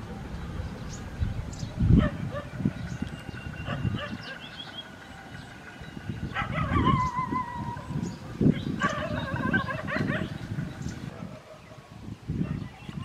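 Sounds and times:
dog howling: 0:06.3 - 0:08.1, 0:08.8 - 0:10.4.

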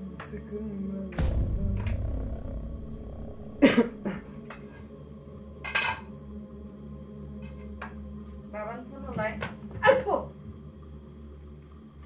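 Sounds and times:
short pitched sound: 0:01.2 - 0:04.6.

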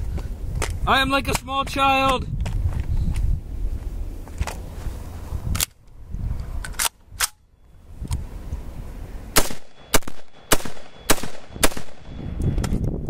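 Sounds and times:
rifle gunshots: 0:09.4 - 0:12.2.

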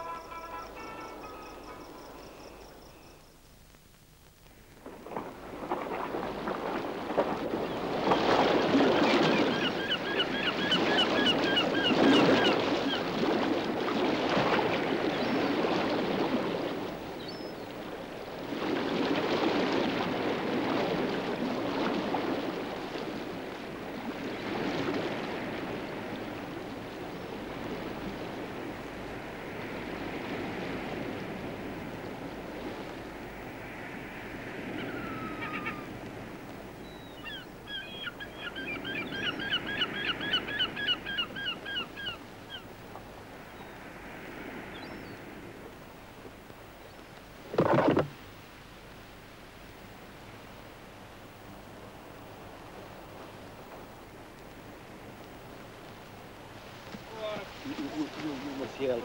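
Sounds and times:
bird calling repeated notes: 0:00.0 - 0:03.3
surf washing against rocks: 0:04.7 - 0:59.0.

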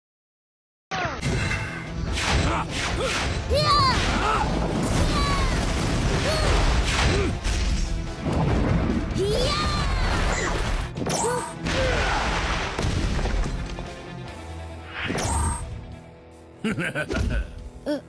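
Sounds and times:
crashes and booms of blasts: 0:04.0 - 0:09.2.

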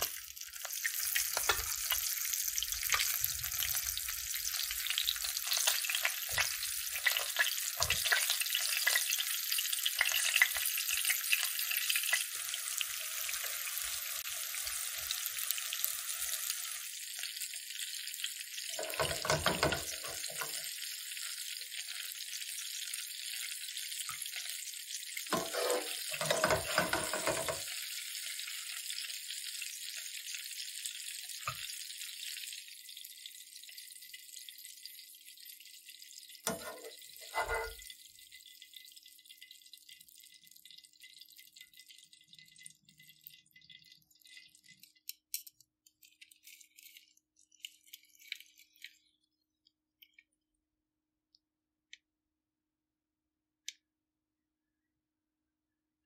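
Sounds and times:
fish sizzling in hot oil: 0:00.0 - 0:49.6
metal tongs knocking on pan: 0:18.8 - 0:20.5, 0:26.2 - 0:27.6.

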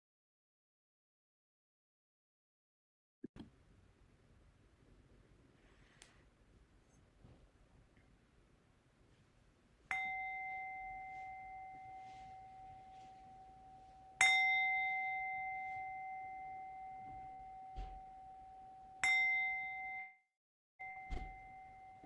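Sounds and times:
singing bowl ringing: 0:09.9 - 0:20.2, 0:20.8 - 0:22.0.

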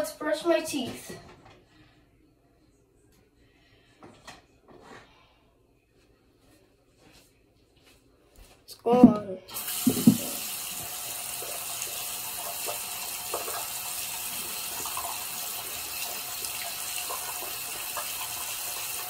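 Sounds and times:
tap water splashing into basin: 0:09.5 - 0:19.0.

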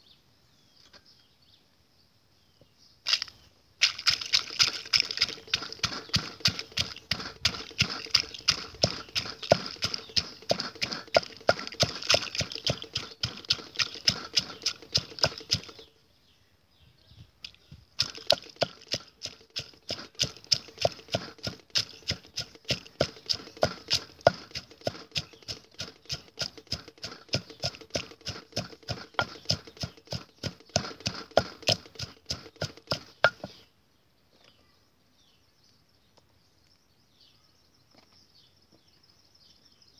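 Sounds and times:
wooden pestle pounding in mortar: 0:03.8 - 0:15.8, 0:18.0 - 0:33.6.

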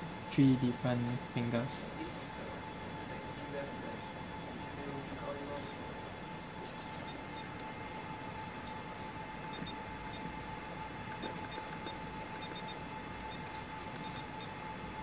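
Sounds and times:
keypad beeps: 0:06.8 - 0:07.6, 0:09.4 - 0:10.4, 0:11.1 - 0:14.6.

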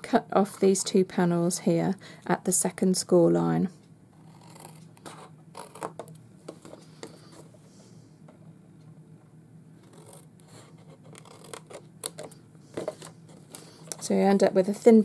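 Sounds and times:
scissors snipping cardstock: 0:09.8 - 0:14.0.

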